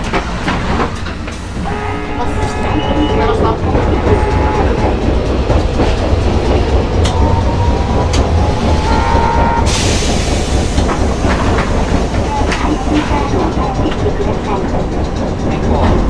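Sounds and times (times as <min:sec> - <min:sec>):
rail-joint clicks: 0:00.0 - 0:16.0
tram motor rumble: 0:00.0 - 0:16.0
whining tone: 0:01.6 - 0:09.7.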